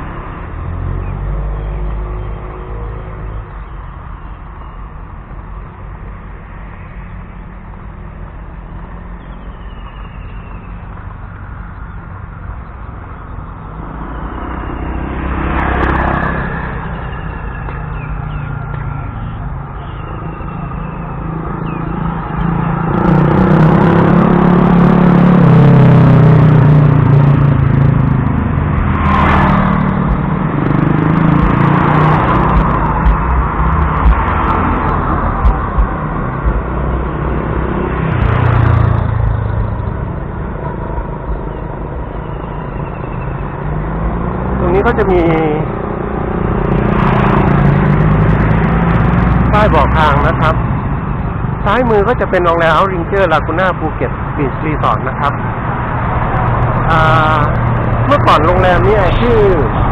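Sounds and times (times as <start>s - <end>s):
vehicles passing: 0.0s - 59.9s
low engine sound: 11.1s - 42.2s.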